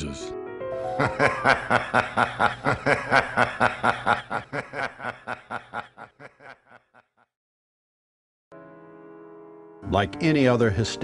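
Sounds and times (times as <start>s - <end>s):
person laughing: 1.0s - 7.2s.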